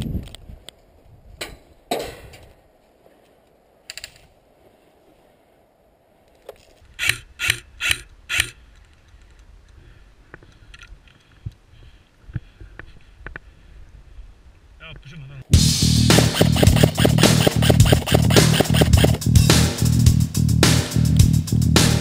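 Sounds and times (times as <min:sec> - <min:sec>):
airsoft gun shots clicking: 0:16.1 - 0:19.2.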